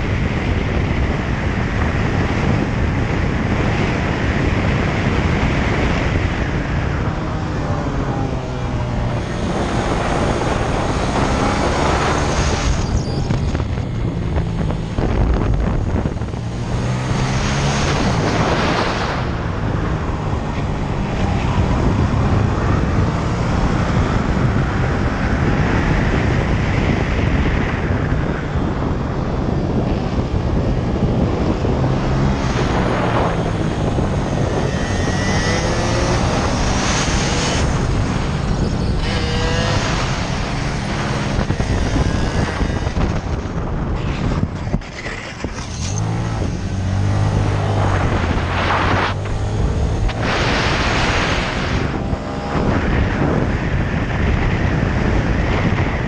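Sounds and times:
motorcycle engine revving: 0.0 - 56.0
minibike engines whining: 28.8 - 52.0.

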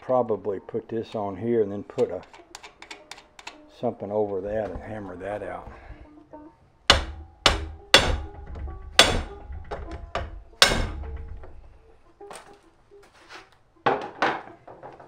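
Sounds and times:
hammer striking metal: 6.9 - 11.6.

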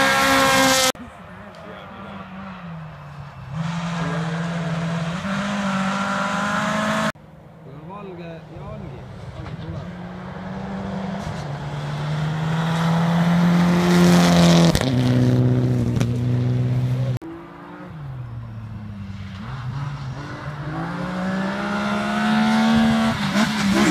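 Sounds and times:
rally car accelerating hard: 0.0 - 1.0, 3.5 - 7.2, 9.0 - 23.9
rally car engine approaching: 0.0 - 23.9.

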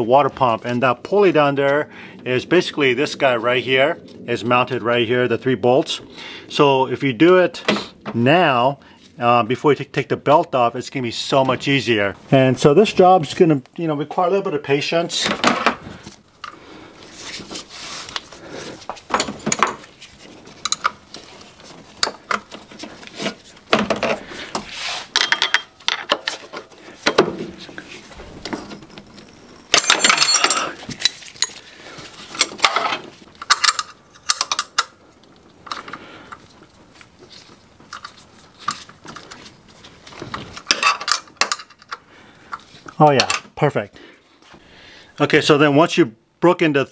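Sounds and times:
wrench clinking on bolts: 25.1 - 26.3, 29.7 - 31.6, 33.4 - 34.9.

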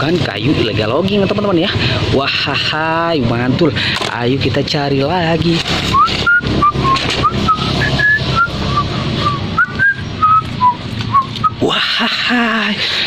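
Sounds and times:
plastic toy vehicles clattering: 3.9 - 4.3, 5.3 - 8.2
person whistling a tune: 5.9 - 11.6.

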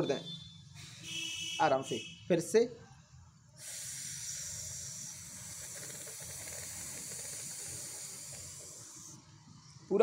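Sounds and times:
breath hissing through teeth: 3.6 - 9.2.

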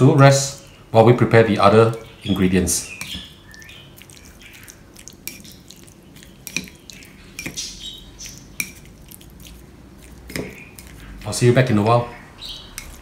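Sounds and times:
wet sounds of meat: 0.3 - 13.0
chopsticks clicking against bowl: 5.1 - 7.6, 12.7 - 13.0.

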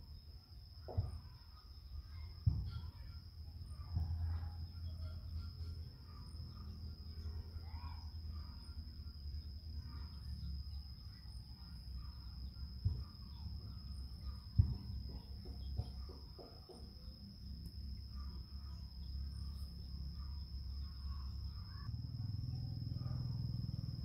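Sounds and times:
faint bird chirps: 0.0 - 23.4
high insect trill: 0.0 - 24.0.

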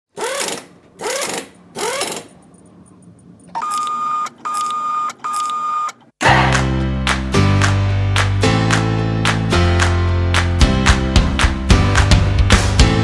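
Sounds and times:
music: 6.2 - 13.0.

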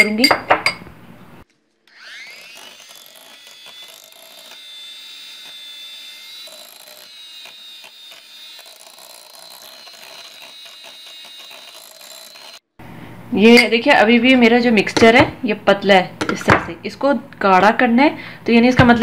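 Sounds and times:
electric hand mixer whine: 1.6 - 12.7.

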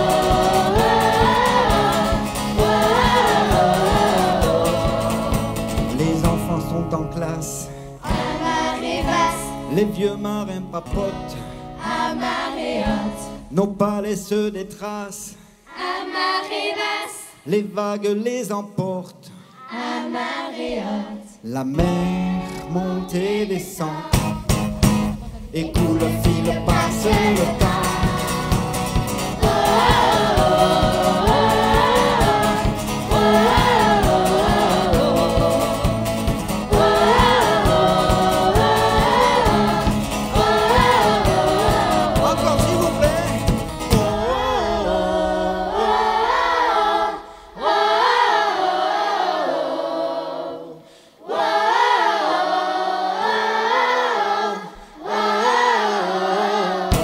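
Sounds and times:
choir singing: 0.0 - 6.5, 8.0 - 10.2, 11.8 - 13.5, 15.7 - 17.5, 19.6 - 24.5, 25.2 - 57.0
acoustic guitar: 0.0 - 15.7, 21.6 - 47.5, 56.8 - 57.0.

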